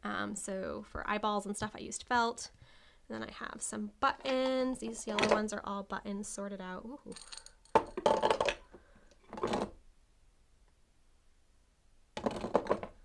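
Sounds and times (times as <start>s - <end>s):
buttons rattling in glass jar: 7.1s - 8.6s.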